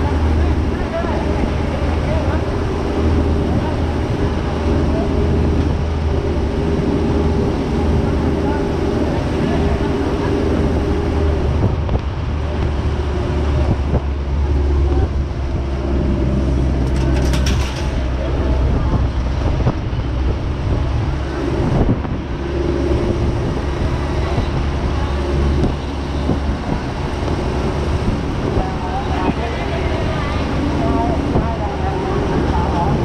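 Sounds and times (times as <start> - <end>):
vehicle engine rumble: 0.0 - 33.0
brief rattle: 16.8 - 18.3.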